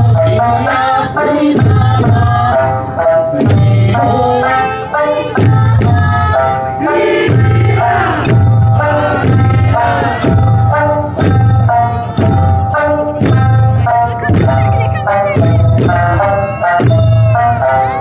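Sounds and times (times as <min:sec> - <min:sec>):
folk song singing: 0:00.0 - 0:11.1
drums struck in steady rhythm: 0:00.0 - 0:18.0.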